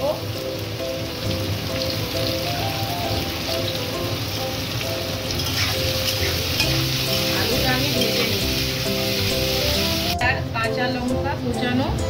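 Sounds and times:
potato sticks sizzling in oil: 0.0s - 10.2s.

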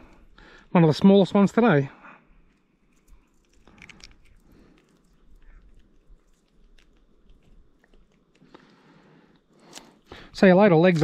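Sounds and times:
rustling: 2.3s - 11.0s.

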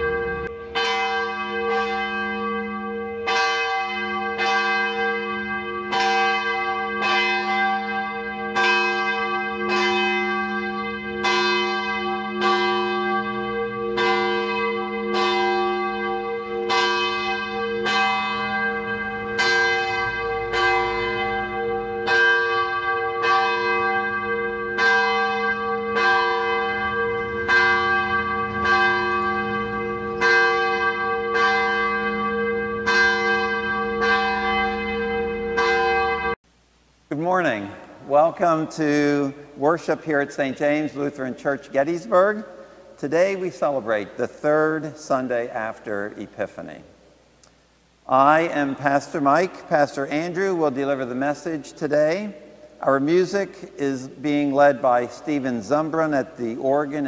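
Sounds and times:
church bell tolling: 0.0s - 36.4s, 37.3s - 46.9s, 48.2s - 57.0s.

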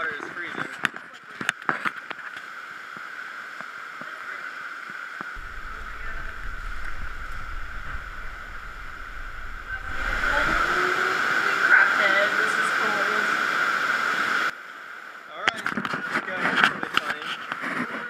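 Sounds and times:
cave stream running: 2.0s - 15.4s
low rumble: 5.4s - 11.4s.

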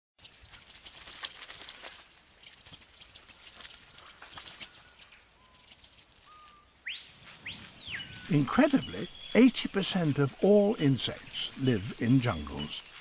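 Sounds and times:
small ticks: 0.2s - 6.6s
steady high hiss: 0.2s - 13.0s
faint whistled bird notes: 4.7s - 5.7s, 6.3s - 9.5s.

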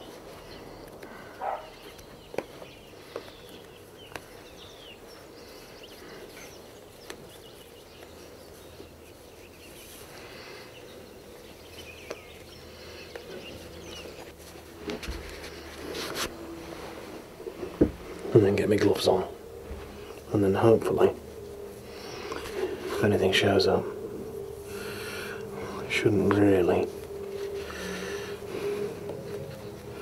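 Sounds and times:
birds chirping: 0.0s - 30.0s.

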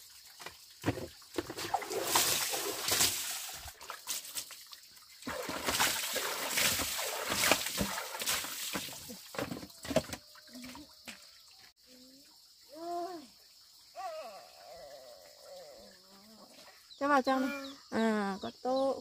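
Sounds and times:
water splashing and sloshing: 0.0s - 11.8s.

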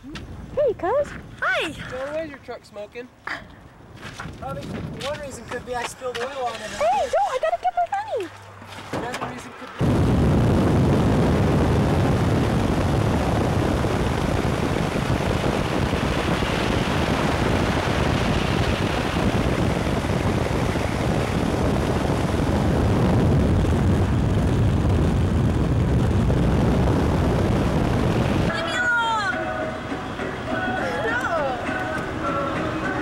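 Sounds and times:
wind and road noise: 0.0s - 33.0s
wind buffeting microphone: 3.6s - 8.2s, 9.4s - 29.3s.

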